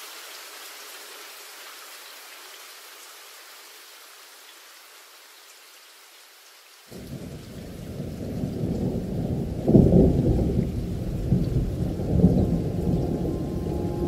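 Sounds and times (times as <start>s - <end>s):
faint rain hiss: 0.0s - 14.0s
rolling thunder: 7.0s - 14.0s.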